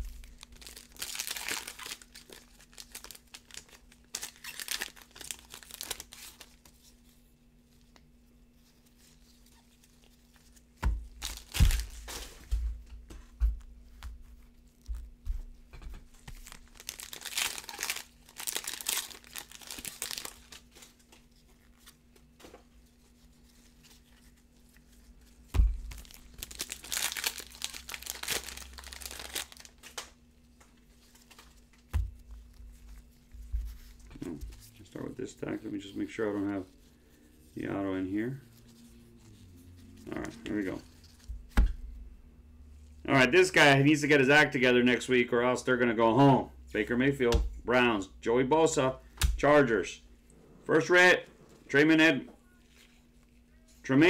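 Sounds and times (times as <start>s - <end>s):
foil wrappers crinkling and tearing: 0.0s - 7.0s, 8.7s - 12.4s, 16.2s - 22.0s, 22.9s - 30.1s.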